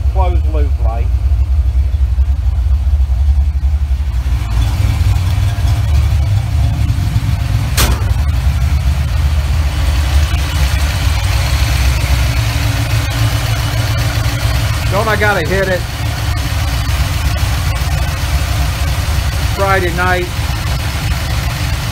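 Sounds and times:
car engine idling: 0.0 - 21.9
sharp click: 7.8 - 8.2.

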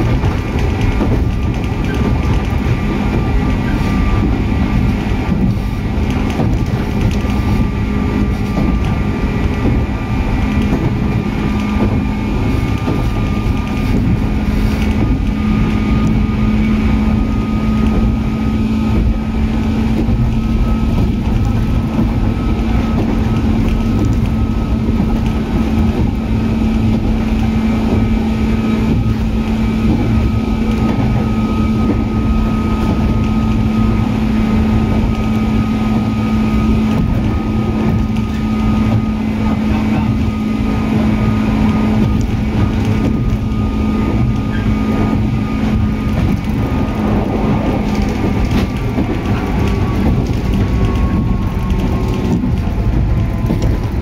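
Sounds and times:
electric train motor whine: 0.0 - 54.0
wheel and rail rumble: 0.0 - 54.0.

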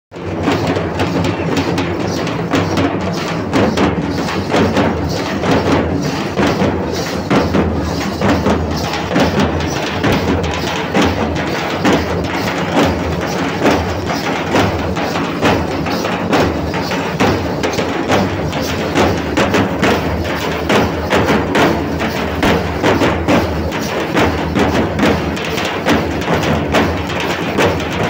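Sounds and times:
folk drumming: 0.1 - 28.0
ankle bells jingling: 0.5 - 28.0.

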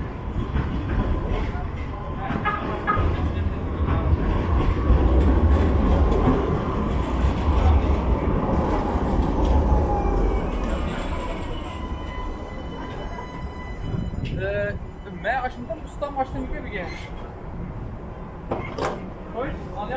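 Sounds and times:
tram rumbling on rails: 0.0 - 19.9.

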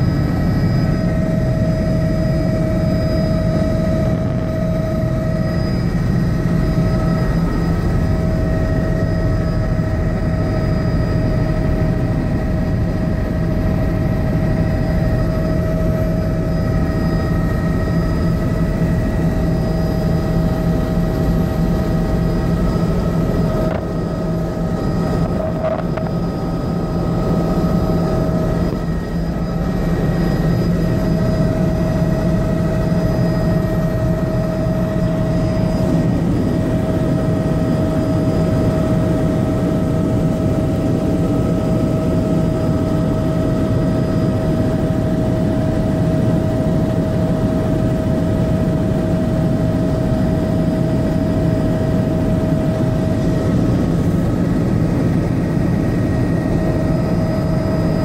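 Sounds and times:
helicopter engine and rotors drone: 0.0 - 58.0
steady high whine: 0.0 - 58.0.

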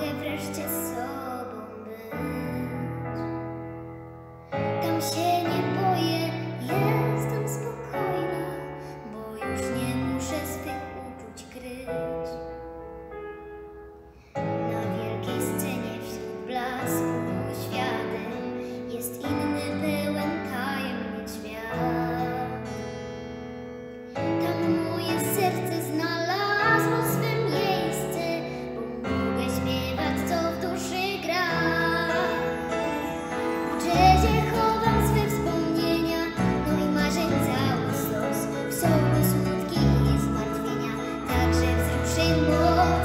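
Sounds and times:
girl singing: 0.0 - 3.6, 4.6 - 12.6, 14.4 - 22.8, 24.2 - 43.0
instrumental accompaniment: 30.0 - 43.0.

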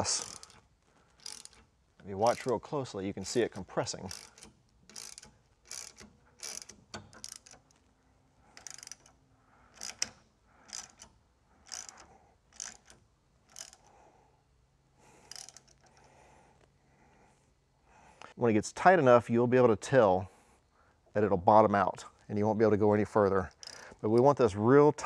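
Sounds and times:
socket ratchet clicking: 0.0 - 1.7, 3.5 - 7.8, 8.6 - 13.9, 15.2 - 16.0, 23.5 - 24.0.

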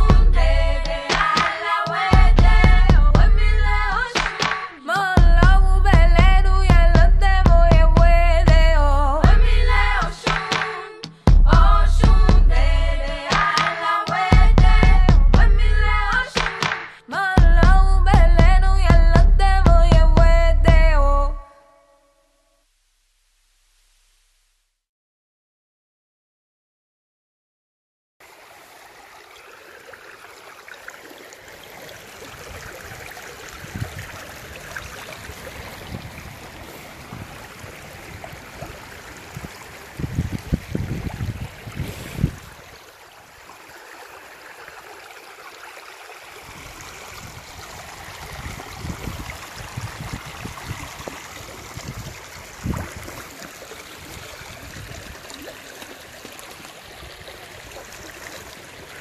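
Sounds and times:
wind rumble on microphone: 32.5 - 42.7, 46.5 - 53.4, 54.0 - 55.3.

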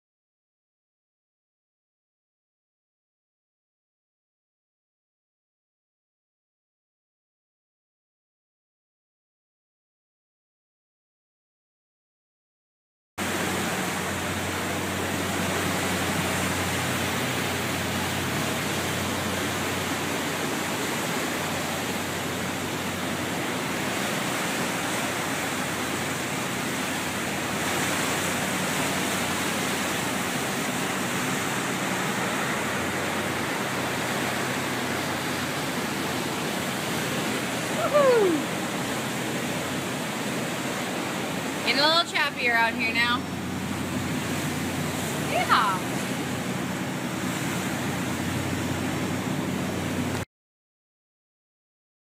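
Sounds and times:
low engine hum: 13.2 - 50.3
rush of water and wind: 13.2 - 50.3.

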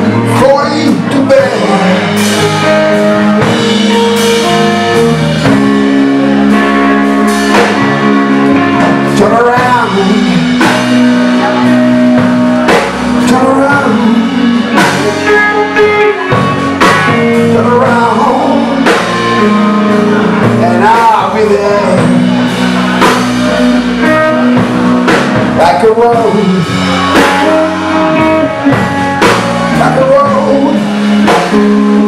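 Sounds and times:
drum kit: 0.0 - 32.0
electric bass: 0.0 - 32.0
electric guitar lead: 0.0 - 32.0.

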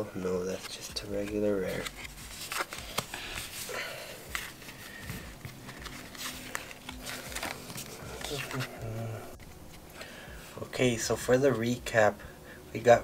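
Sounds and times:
cards clicking and rustling: 0.3 - 10.2.

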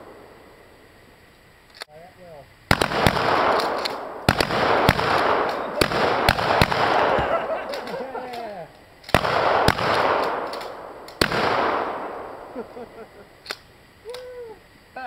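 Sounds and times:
gunshot echo off woods: 2.7 - 8.4, 9.1 - 12.7
shotgun shots: 2.7 - 8.4, 9.0 - 12.7.

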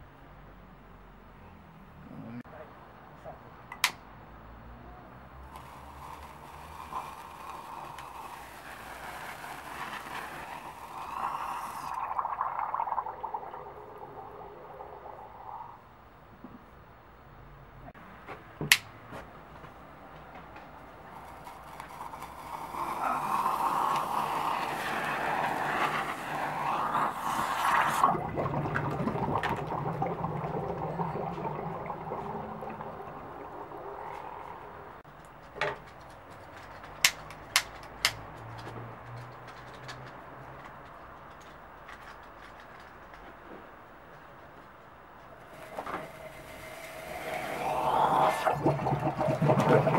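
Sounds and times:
sparklers hissing: 5.4 - 12.3, 21.1 - 28.0, 45.4 - 48.5
bubbling gurgle underwater: 8.3 - 15.9, 22.6 - 35.0, 45.4 - 49.9.

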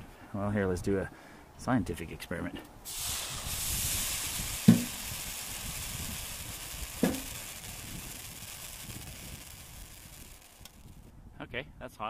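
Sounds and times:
snow sizzling on hot metal: 2.9 - 11.1
sharp knocks: 4.7 - 5.0, 7.0 - 7.3.

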